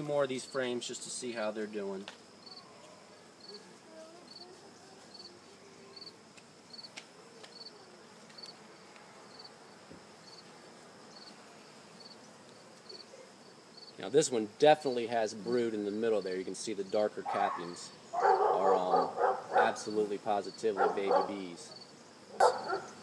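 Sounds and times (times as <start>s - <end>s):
bees buzzing: 0.0s - 23.0s
cricket chirping: 2.3s - 7.7s, 9.3s - 9.6s, 10.2s - 10.5s, 11.1s - 11.4s, 12.0s - 14.0s, 16.9s - 23.0s.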